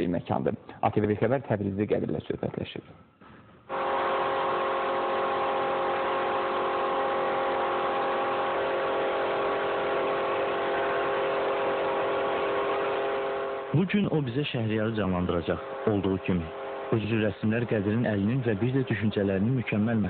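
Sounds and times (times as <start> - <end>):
paint spray gun hissing: 3.7 - 13.7
air compressor humming: 3.7 - 19.6.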